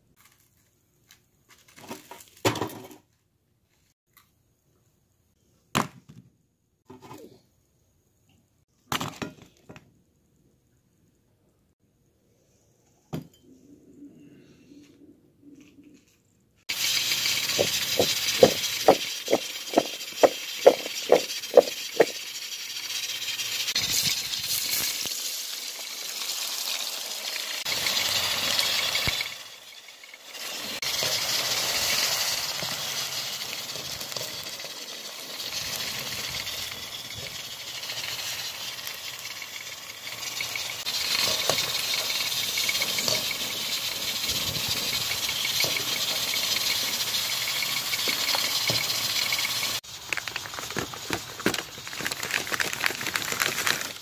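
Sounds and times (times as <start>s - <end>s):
potatoes sizzling in hot oil: 16.7s - 54.0s
fried food crunching: 49.4s - 54.0s.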